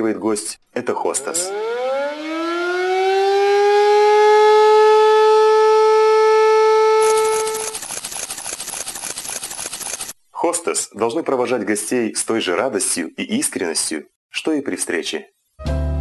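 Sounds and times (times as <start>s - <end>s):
siren-like wail: 1.1s - 7.8s.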